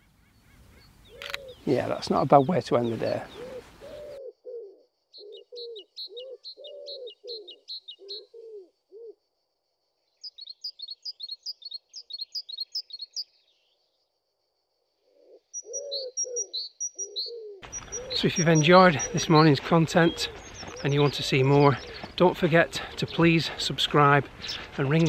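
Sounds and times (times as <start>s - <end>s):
songbird chirping: 0.0s - 25.0s
pigeon cooing: 2.8s - 9.2s, 15.0s - 23.6s.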